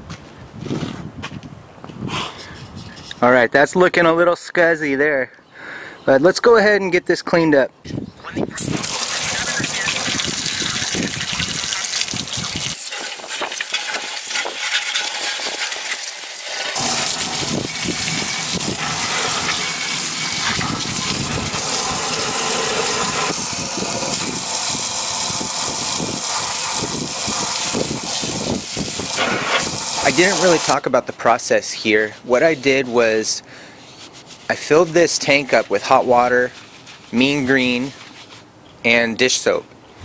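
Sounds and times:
hose spray hissing on metal: 8.6 - 30.9.

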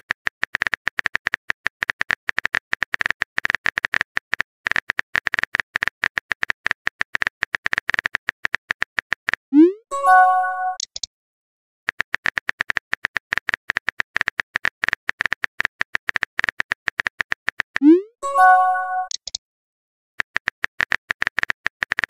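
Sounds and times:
short multi-note chime: 9.9 - 10.8, 18.2 - 19.1.

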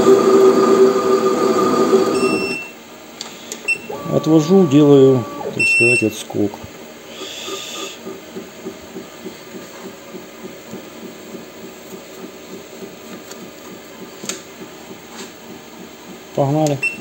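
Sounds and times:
lathe rhythmic throb: 3.8 - 5.7, 7.2 - 17.0.

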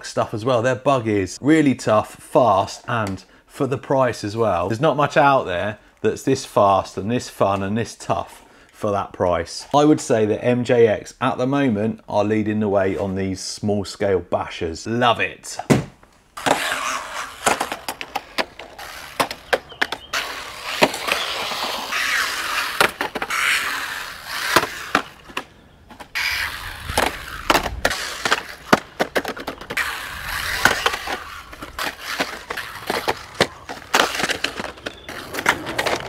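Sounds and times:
rc car clacking on landings: 16.4 - 36.0
rc car tyres rolling on concrete: 16.4 - 36.0.

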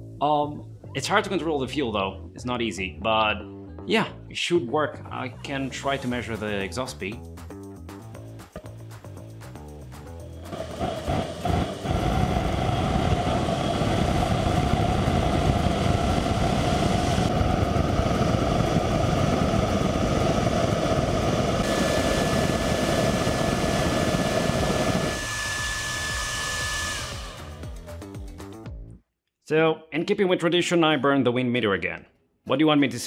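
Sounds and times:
rush of air and burning fuel: 10.4 - 27.7
fan whine: 10.4 - 27.9.

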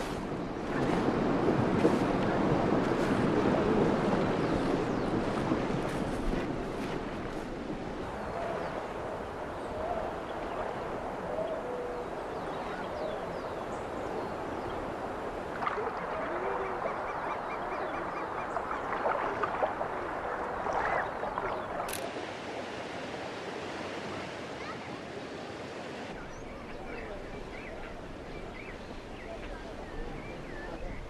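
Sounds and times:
birds chirping: 8.1 - 22.0, 26.2 - 31.0.

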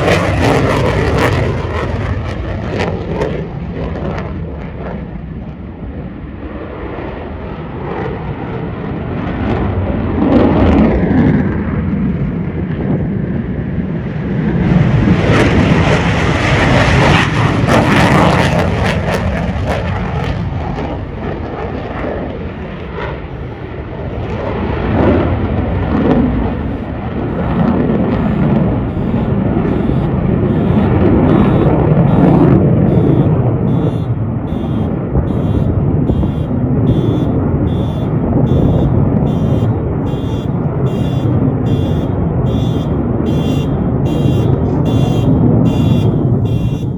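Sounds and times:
fighter jet engines rumbling: 0.0 - 46.9.

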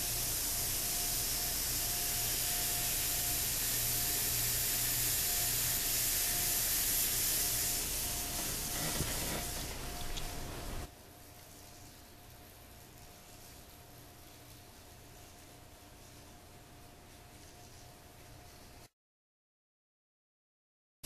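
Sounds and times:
faint broken whine: 0.0 - 10.9
model locomotives hissing and humming: 0.0 - 14.4.

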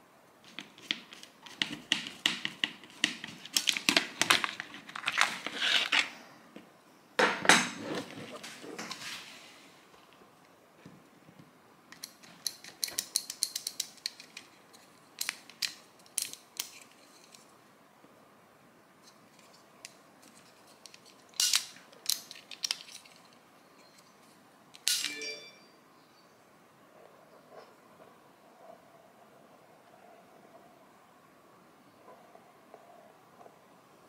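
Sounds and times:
small parts clicking and clinking: 11.9 - 17.5, 19.0 - 24.2
short metallic ring: 24.9 - 25.8.

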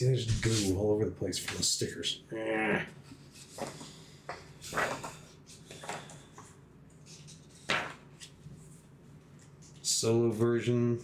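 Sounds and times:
paper pages rustling: 4.6 - 8.8.

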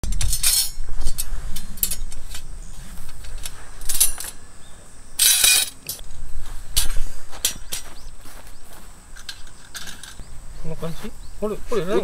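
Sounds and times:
wind rumble on microphone: 0.0 - 4.2, 5.9 - 12.0
metal grill parts clinking and scraping: 0.0 - 4.4, 5.2 - 6.1, 6.7 - 8.0, 9.1 - 10.3.

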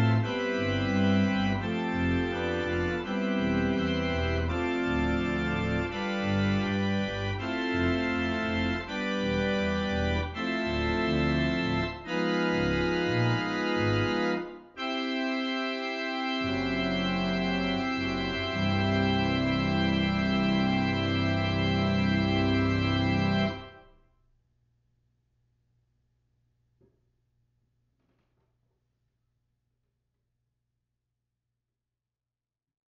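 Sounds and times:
low organ pedal note: 0.0 - 23.8
church organ playing chords: 0.0 - 23.9.

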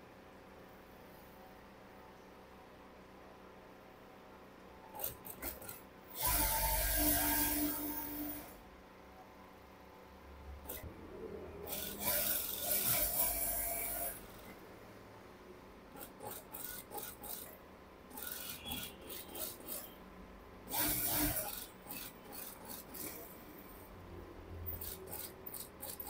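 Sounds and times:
sewing machine stitching: 4.9 - 8.5, 10.6 - 10.9, 11.6 - 14.6, 16.0 - 20.0, 20.7 - 23.4, 24.7 - 26.0.

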